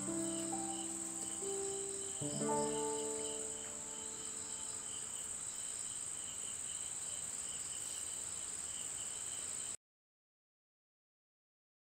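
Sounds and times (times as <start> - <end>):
plucked musical note: 0.0 - 4.9
insects chirring: 0.0 - 9.8
lower insect chirping: 0.0 - 9.8.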